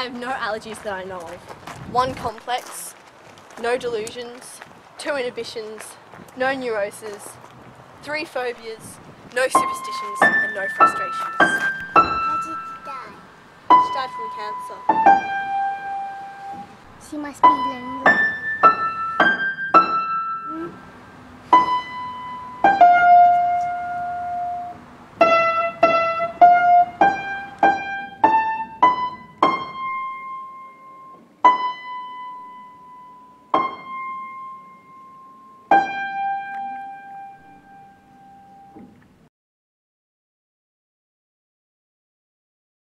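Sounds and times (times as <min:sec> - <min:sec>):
slow solo piano melody: 0:17.4 - 0:20.7, 0:21.5 - 0:38.8.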